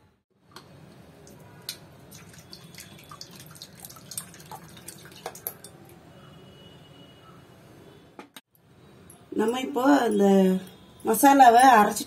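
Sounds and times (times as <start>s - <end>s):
oil dripping into metal pot: 1.3s - 5.8s.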